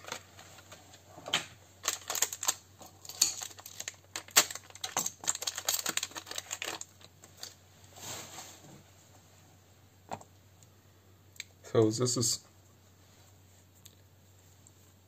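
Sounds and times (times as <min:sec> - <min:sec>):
small hard parts clicking: 0:01.8 - 0:07.6.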